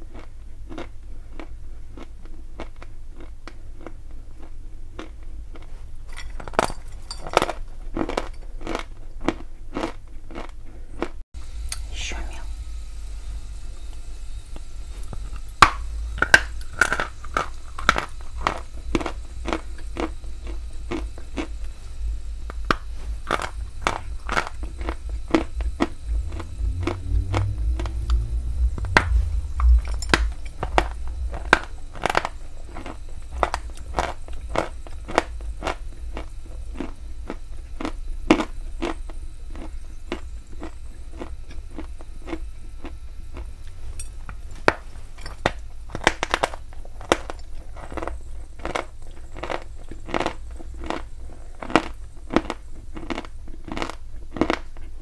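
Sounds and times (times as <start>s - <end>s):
gritty chewing: 0.0s - 11.2s, 14.6s - 55.0s
low rumble: 11.4s - 52.2s.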